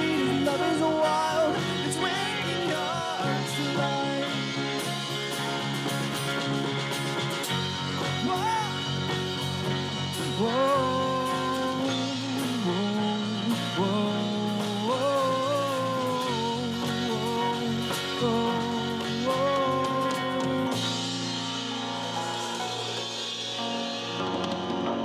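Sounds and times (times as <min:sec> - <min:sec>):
person singing: 0:00.0 - 0:05.1, 0:08.2 - 0:08.8, 0:10.2 - 0:22.2
acoustic guitar: 0:00.0 - 0:25.0
piano: 0:00.0 - 0:25.0
steady rhythm: 0:00.0 - 0:25.0.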